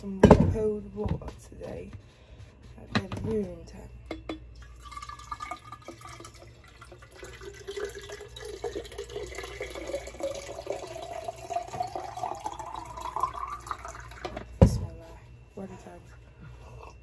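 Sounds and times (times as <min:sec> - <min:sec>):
water gurgling into a bottle: 0:04.7 - 0:14.2.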